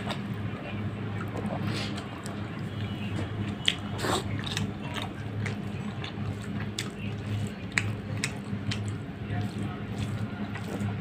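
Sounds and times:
steady low hum: 0:00.0 - 0:11.0
wet mouth clicks and smacks chewing: 0:03.5 - 0:11.0.

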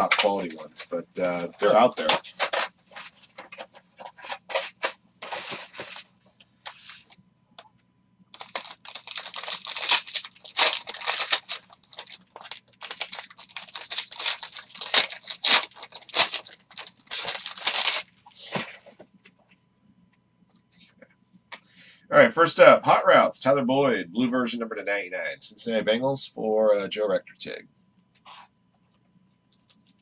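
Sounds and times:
foil wrapper crackling: 0:08.4 - 0:18.1.

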